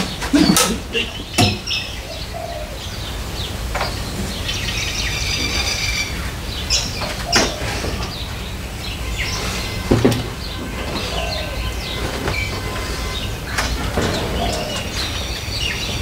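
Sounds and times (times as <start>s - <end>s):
crane chain knocks and clanks: 11.9s - 16.0s.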